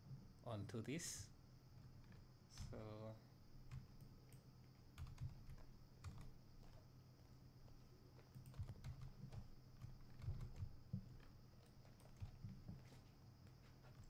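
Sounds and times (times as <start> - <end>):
low steady hum: 0.0 - 14.0
computer keyboard clicks: 5.0 - 6.8, 8.2 - 12.6.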